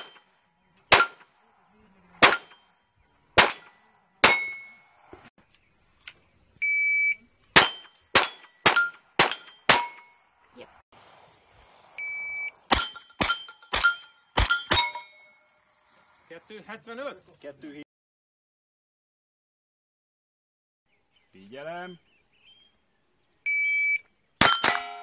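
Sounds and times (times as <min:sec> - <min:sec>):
insects chirping: 0:00.0 - 0:14.6, 0:15.2 - 0:17.8, 0:20.9 - 0:24.4
pistol shots: 0:00.9 - 0:01.3, 0:02.2 - 0:02.6, 0:03.4 - 0:04.8, 0:07.6 - 0:10.1, 0:12.7 - 0:15.0
steel plate ringing: 0:03.4 - 0:04.9, 0:07.6 - 0:10.2, 0:12.7 - 0:15.4, 0:24.4 - 0:25.0
shot timer beep: 0:23.5 - 0:24.0.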